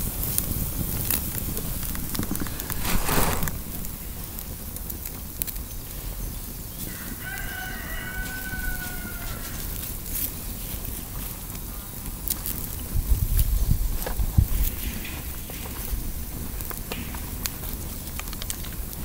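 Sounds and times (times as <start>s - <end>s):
campfire crackling: 0.0s - 19.0s
short rustle: 0.5s - 4.5s.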